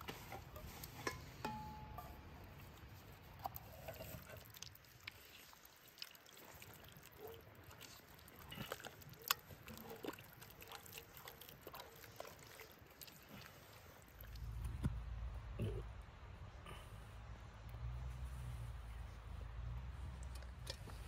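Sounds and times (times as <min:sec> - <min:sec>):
spatula squelching thick filling: 0:02.7 - 0:14.7.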